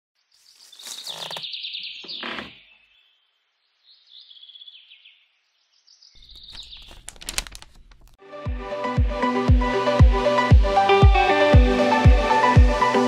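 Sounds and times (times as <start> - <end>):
bird chirping and trilling: 0.4 - 3.2, 3.8 - 7.2
run of clicks: 6.3 - 8.2.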